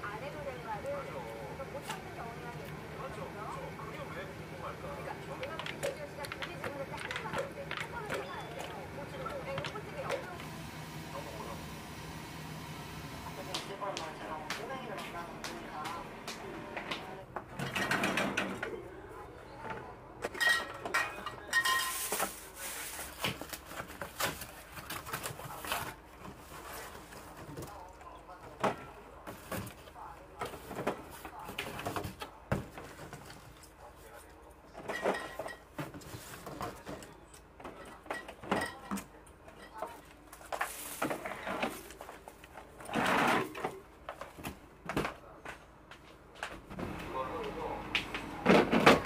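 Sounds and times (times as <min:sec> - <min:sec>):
dishes and cutlery clattering: 0:17.6 - 0:18.6, 0:20.2 - 0:22.4, 0:34.8 - 0:40.0.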